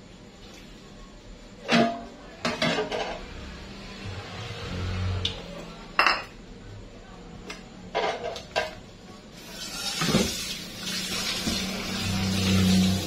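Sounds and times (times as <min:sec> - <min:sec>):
dishes and utensils clattering: 0:01.6 - 0:03.2, 0:06.0 - 0:06.3, 0:07.9 - 0:08.8
tap water running: 0:09.4 - 0:13.0.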